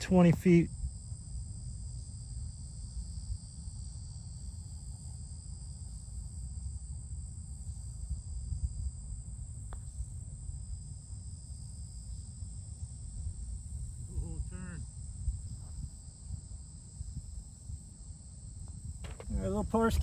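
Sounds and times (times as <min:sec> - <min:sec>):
high-pitched insect chorus: 0:00.1 - 0:20.0
putter striking golf ball: 0:19.0 - 0:19.4.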